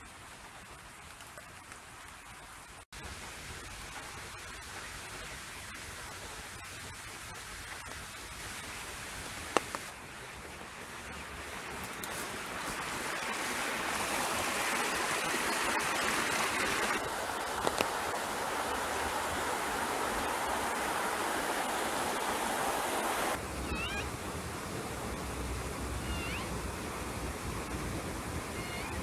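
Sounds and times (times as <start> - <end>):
water running: 0.0 - 23.4
rain on paving and foliage: 0.0 - 29.0
chirping calls: 23.7 - 24.1, 26.0 - 26.5.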